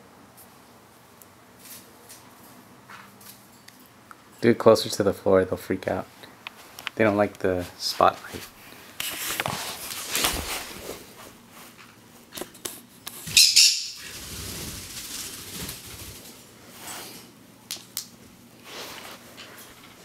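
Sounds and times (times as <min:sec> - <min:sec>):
parrot squawk: 0:13.3 - 0:14.1
parrot wings flapping: 0:13.3 - 0:16.5.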